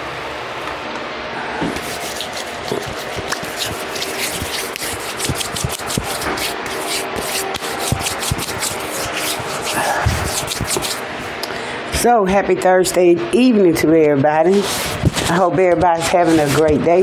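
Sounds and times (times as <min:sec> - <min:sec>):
room fan hiss: 0:00.0 - 0:17.0
hands rubbing together: 0:01.7 - 0:11.0, 0:14.5 - 0:16.8.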